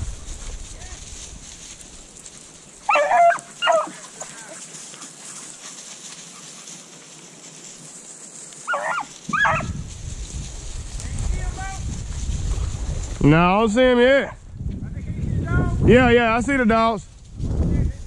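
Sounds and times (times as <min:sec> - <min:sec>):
dogs barking: 0:02.8 - 0:07.0, 0:08.6 - 0:09.8.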